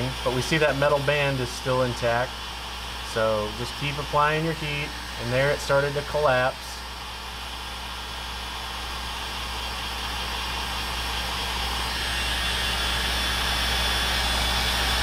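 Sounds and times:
heat gun blowing air: 0.0 - 15.0.

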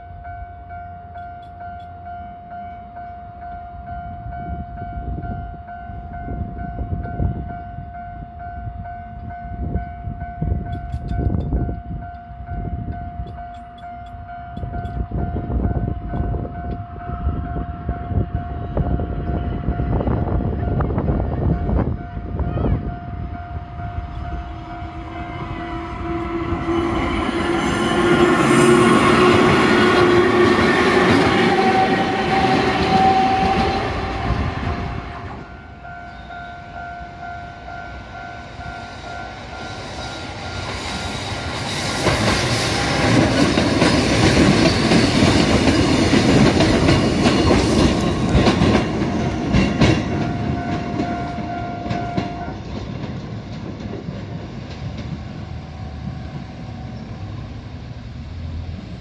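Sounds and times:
level-crossing warning bell: 0.0 - 53.9
electric train passing: 0.0 - 59.0
wheels clacking over rail joints: 40.5 - 55.9.

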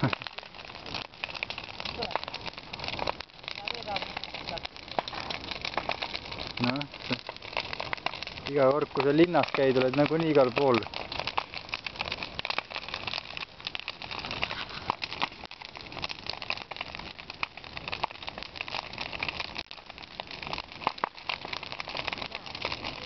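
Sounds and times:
bonfire crackling and popping: 0.0 - 23.0.

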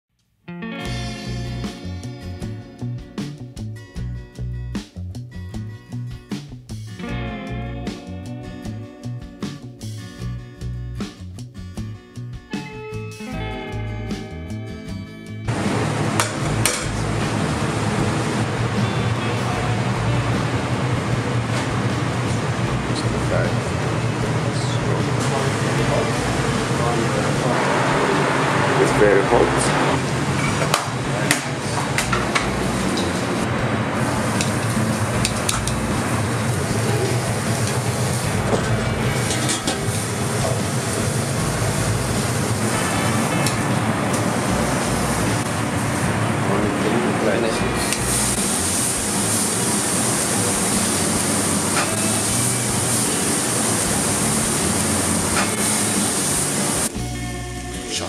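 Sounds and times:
steak sizzling on hot stone: 39.1 - 46.0, 47.8 - 56.9
steady hiss: 47.8 - 56.9.

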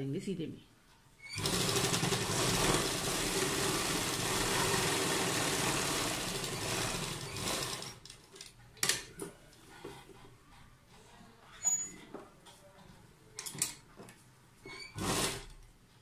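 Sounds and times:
sewing machine running: 1.2 - 8.2, 14.9 - 15.6.

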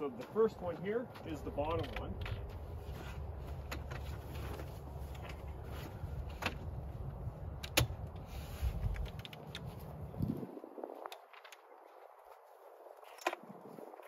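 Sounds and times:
wind buffeting microphone: 4.8 - 14.0.

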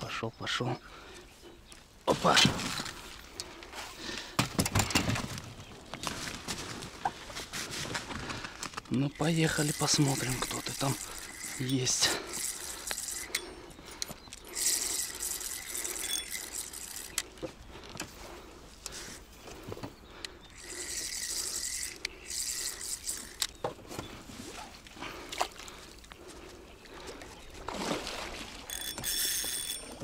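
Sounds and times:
water splashing from rowing: 9.1 - 13.6, 23.6 - 30.0.

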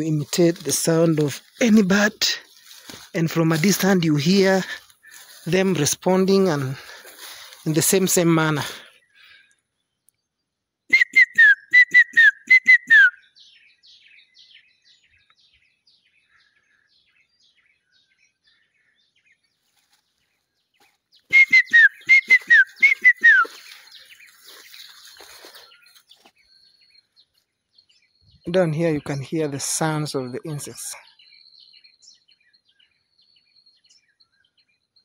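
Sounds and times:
distant bird calls: 0.0 - 35.0
person whistling bird-like phrase: 10.9 - 13.2, 21.3 - 23.8.

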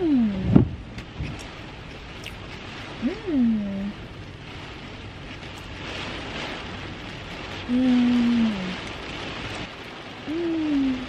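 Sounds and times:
rain pattering on a car: 0.0 - 11.0
woman humming mmm: 7.7 - 8.8, 10.3 - 11.0.

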